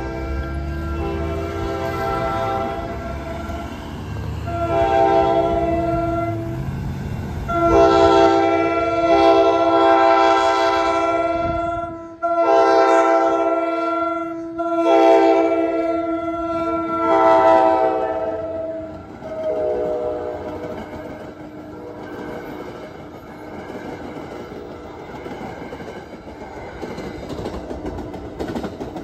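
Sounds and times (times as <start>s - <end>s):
locomotive air horn blasts: 0.0s - 6.6s, 7.5s - 22.2s
low train rumble: 0.0s - 29.0s.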